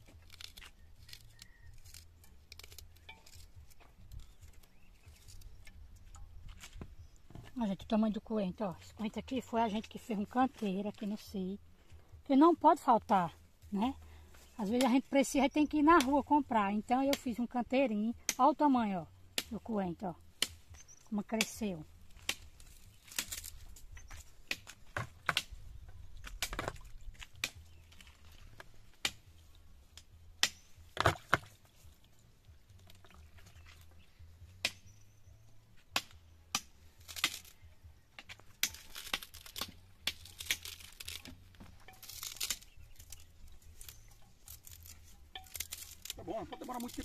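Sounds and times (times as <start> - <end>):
meat tearing and crinkling: 0.0 - 5.6, 37.0 - 37.6, 38.3 - 47.0.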